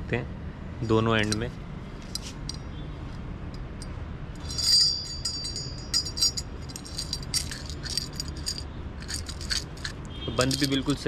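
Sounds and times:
metal nunchaku clicking and clinking: 3.8 - 11.0.

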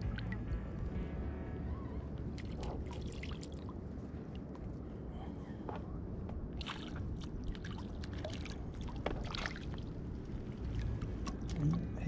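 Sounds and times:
water splashing and dripping: 0.0 - 0.7, 2.3 - 3.8, 6.6 - 11.9
steady low rumble: 0.0 - 12.0.

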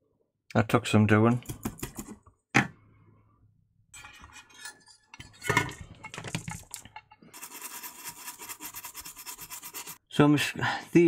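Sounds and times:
fast even scratching: 7.4 - 10.0.

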